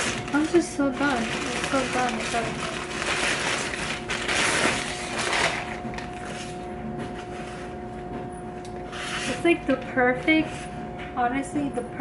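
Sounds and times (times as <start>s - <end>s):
plastic packaging crinkling: 0.0s - 6.7s.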